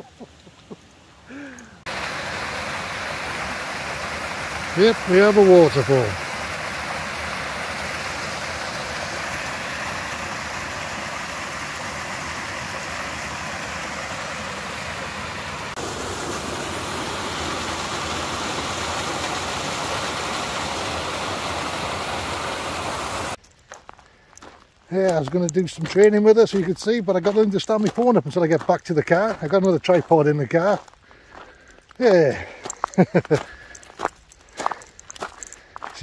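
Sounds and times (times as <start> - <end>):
water rushing over rocks: 1.8 - 23.4.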